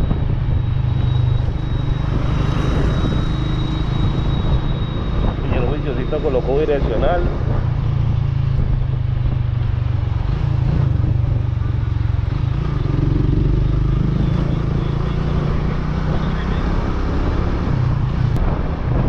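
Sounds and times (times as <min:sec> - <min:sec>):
motorcycle engine running: 0:07.1 - 0:15.6.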